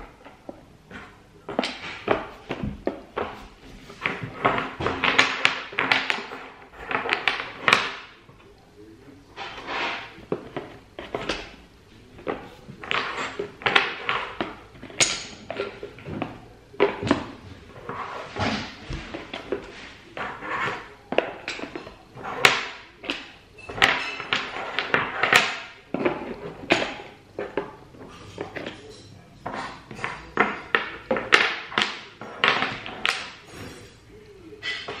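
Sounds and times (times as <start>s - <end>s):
wooden blocks clacking: 0.0s - 8.2s, 12.2s - 17.4s, 18.3s - 28.8s, 29.4s - 33.5s.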